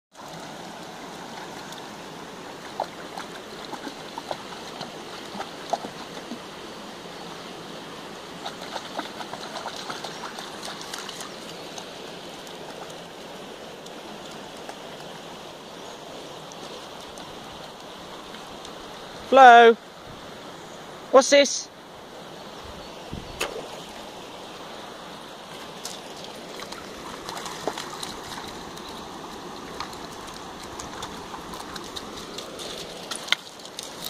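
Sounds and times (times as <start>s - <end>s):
puppy paws splashing water: 0.1s - 7.5s, 8.3s - 19.4s, 25.4s - 34.0s
stream running over stones: 0.1s - 34.0s.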